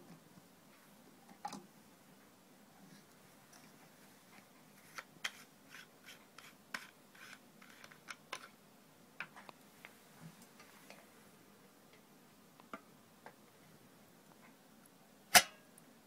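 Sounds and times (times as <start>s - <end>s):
plastic parts clicking and scraping: 6.4s - 8.6s.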